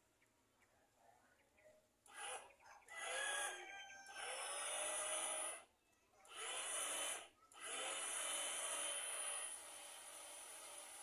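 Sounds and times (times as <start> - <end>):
small electric motor whining: 2.1 - 5.7, 6.3 - 11.0.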